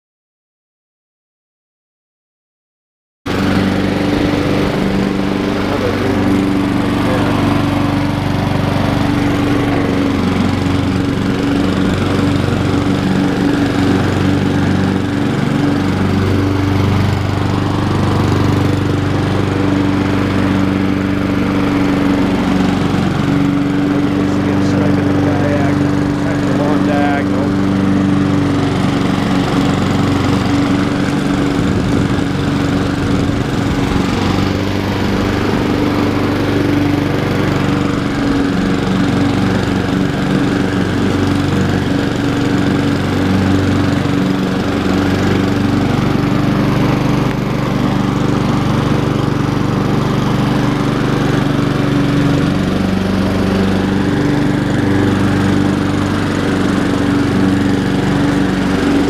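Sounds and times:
lawn mower running: 0:03.3 - 0:59.0.

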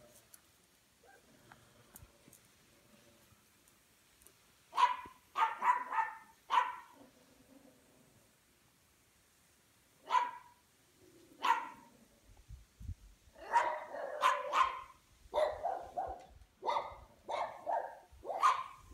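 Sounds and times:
puppies barking: 0:04.8 - 0:07.0, 0:13.4 - 0:18.8.

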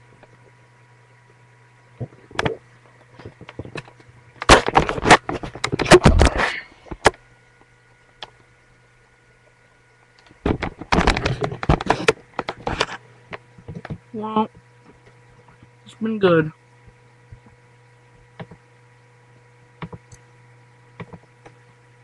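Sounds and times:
low steady hum: 0:00.0 - 0:22.0
webcam handling knocks and rustles: 0:03.2 - 0:06.3, 0:10.4 - 0:14.0.

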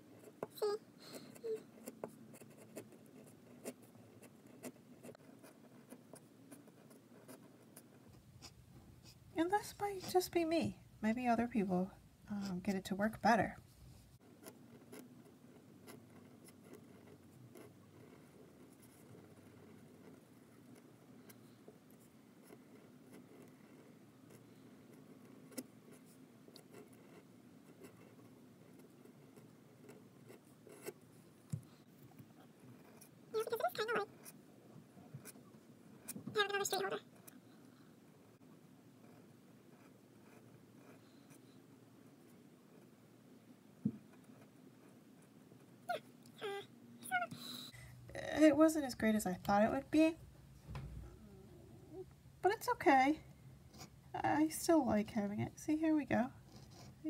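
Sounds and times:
pen nib scratching paper: 0:00.1 - 0:10.4, 0:14.2 - 0:31.6, 0:32.2 - 0:34.4, 0:35.2 - 0:37.4, 0:39.0 - 0:42.9, 0:55.8 - 0:57.0.

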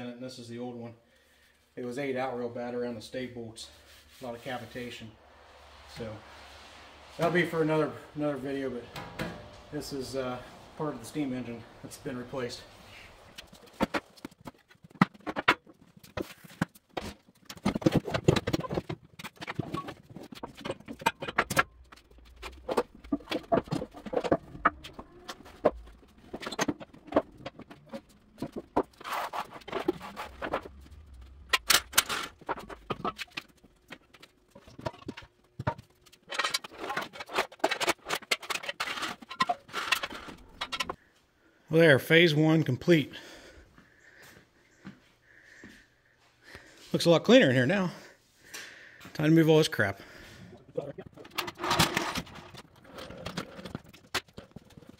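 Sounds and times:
metal parts clanking and scraping: 0:04.2 - 0:16.3, 0:17.5 - 0:41.0, 0:51.0 - 0:54.9.

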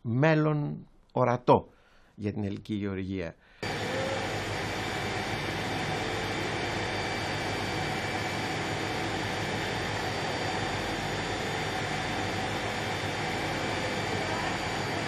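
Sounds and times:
machinery droning: 0:03.6 - 0:15.0.

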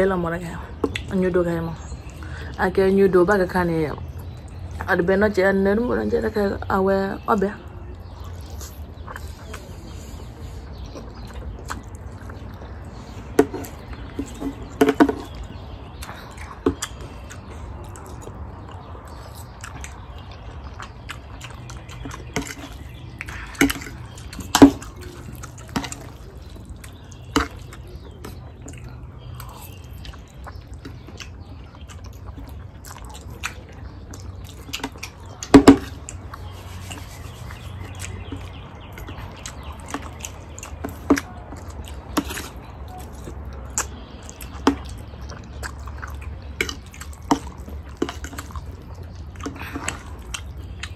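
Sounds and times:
people slurping and chewing noodles: 0:04.0 - 0:50.9.

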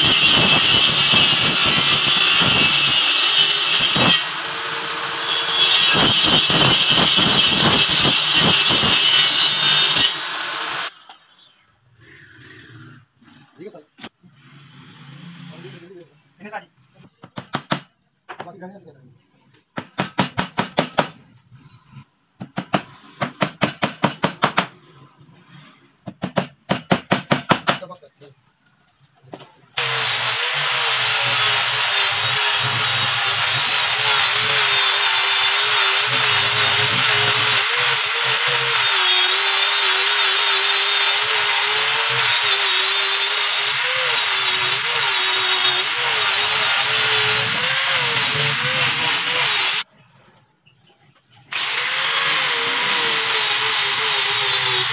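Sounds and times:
electric power tool running: 0:29.8 - 0:49.8, 0:51.5 - 0:54.9.

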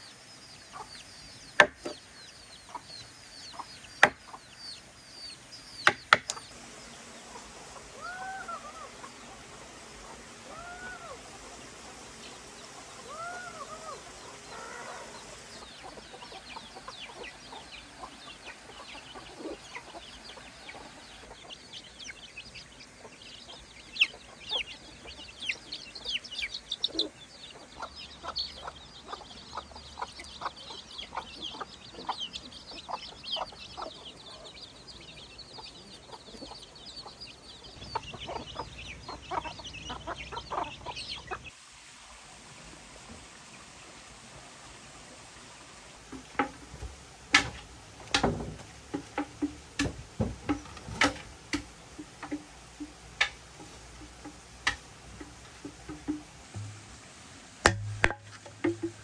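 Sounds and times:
chicks peeping: 0:00.0 - 0:41.6
hen clucking: 0:00.0 - 0:41.6, 0:46.0 - 0:59.0.

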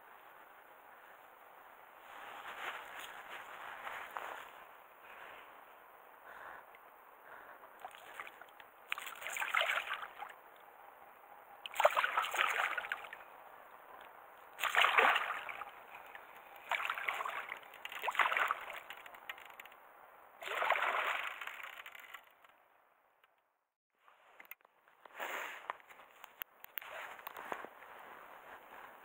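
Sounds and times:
fish splashing in water: 0:07.8 - 0:10.4, 0:11.6 - 0:13.2, 0:14.6 - 0:19.4, 0:20.4 - 0:22.2.

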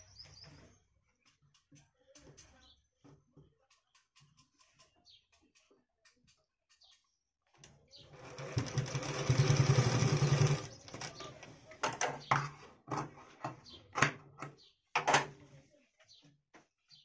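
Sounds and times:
sewing machine stitching: 0:08.1 - 0:11.6.

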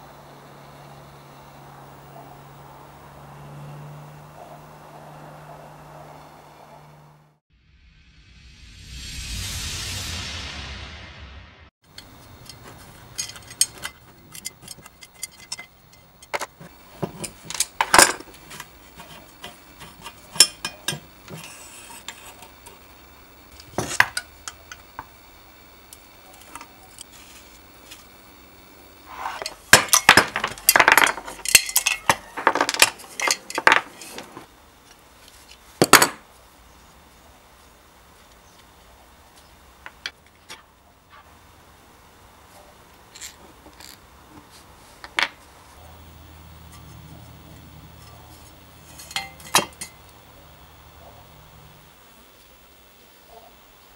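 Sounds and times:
metal clattering: 0:11.9 - 0:22.8, 0:29.1 - 0:34.5, 0:48.8 - 0:50.0
metallic clinks of hand tools: 0:12.0 - 0:22.2, 0:29.4 - 0:34.2, 0:48.9 - 0:50.0.

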